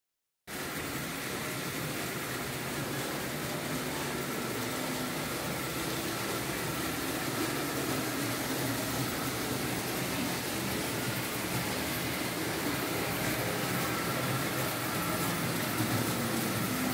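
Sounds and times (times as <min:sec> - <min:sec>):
model train motors humming: 0:00.6 - 0:16.9.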